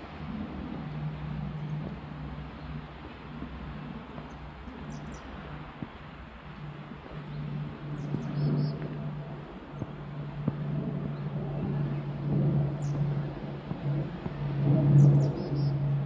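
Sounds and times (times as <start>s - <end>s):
vehicle engine humming: 0.0s - 16.0s.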